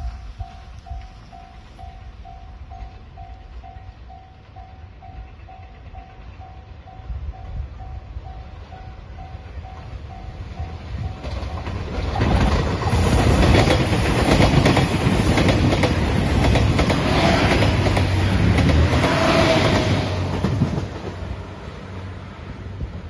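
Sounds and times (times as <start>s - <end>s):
level crossing warning bell: 0.0s - 11.9s
diesel train engines running: 0.0s - 23.0s.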